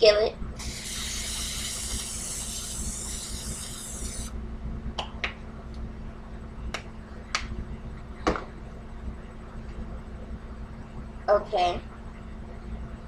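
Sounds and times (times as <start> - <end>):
cooking spray hissing: 0.6 - 4.3.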